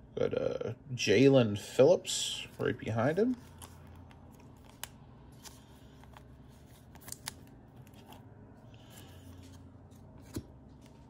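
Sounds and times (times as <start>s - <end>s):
plastic card sleeve rustling: 2.4s - 11.0s.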